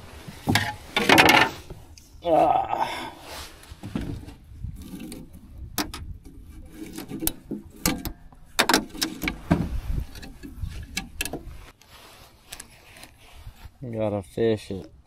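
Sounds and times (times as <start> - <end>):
knocks and clicks in metal boat: 3.9 - 11.5
jacket rustling: 11.4 - 13.9.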